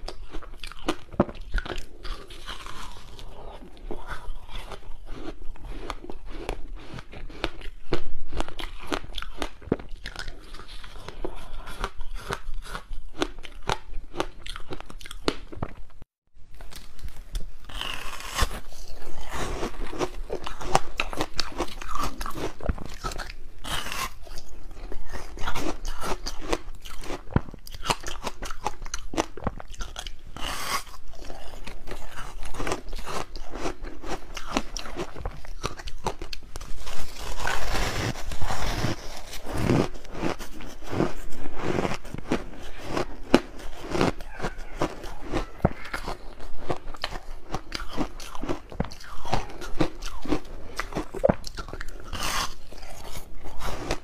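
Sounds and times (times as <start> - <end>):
crunching and chewing ice: 0.0 - 54.0.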